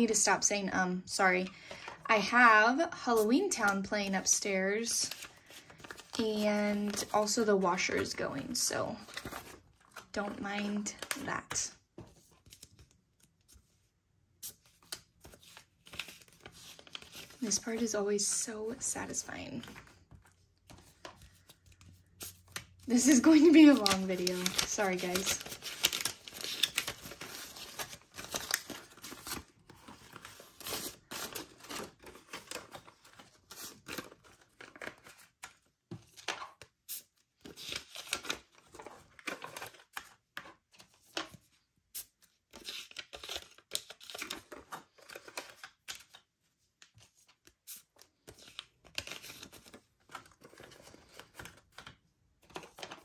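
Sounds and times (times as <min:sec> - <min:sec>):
paper banknotes rustling: 0:05.1 - 0:07.3, 0:19.7 - 0:35.3.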